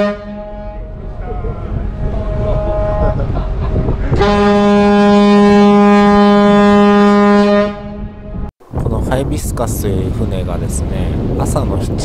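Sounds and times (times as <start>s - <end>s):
ship horn long low blast: 0.0s - 8.5s
low wind: 0.0s - 12.0s.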